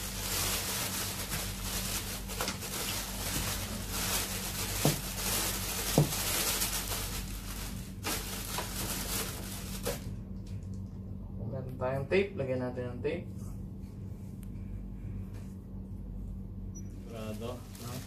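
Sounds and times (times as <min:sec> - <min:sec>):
plastic bag rustling: 0:00.0 - 0:10.2, 0:17.1 - 0:18.0
low hum: 0:06.7 - 0:17.8.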